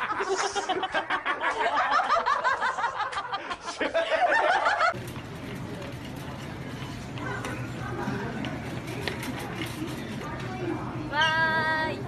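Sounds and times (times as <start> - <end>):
women laughing hard: 0.0 - 5.0
supermarket background noise: 4.6 - 12.0.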